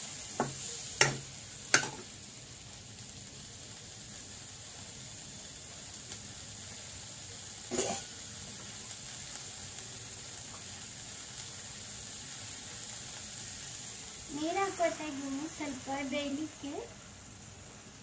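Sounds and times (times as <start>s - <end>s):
vegetables sizzling in oil: 0.0s - 18.0s
cough-like sound: 7.7s - 8.1s.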